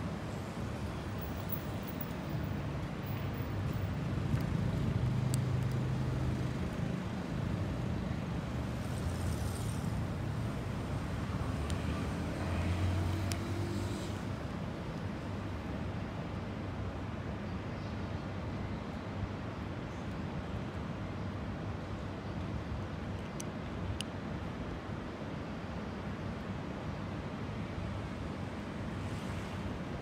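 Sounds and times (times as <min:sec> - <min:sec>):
road traffic hum: 0:00.0 - 0:17.7, 0:18.4 - 0:30.0
faint sharp clicks: 0:05.2 - 0:05.9, 0:11.6 - 0:11.9, 0:13.0 - 0:14.2, 0:23.2 - 0:24.2
vehicle engine: 0:08.7 - 0:14.4.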